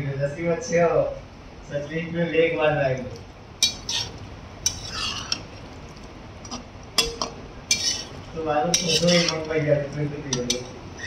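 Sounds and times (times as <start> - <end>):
spatula scraping metal pan: 3.6 - 5.5, 7.0 - 9.6.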